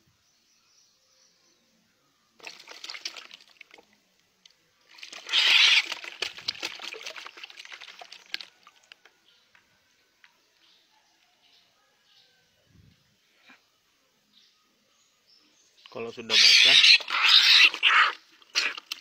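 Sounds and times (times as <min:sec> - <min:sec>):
bird splashing in water: 0:02.4 - 0:03.9, 0:04.9 - 0:08.9.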